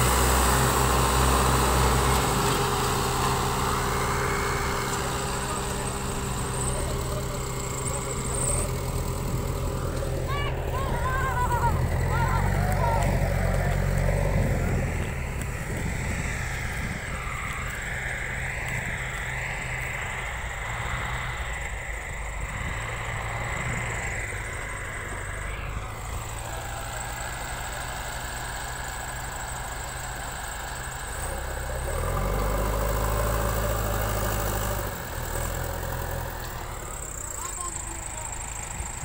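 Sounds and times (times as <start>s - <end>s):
diesel engines running: 0.0s - 39.0s.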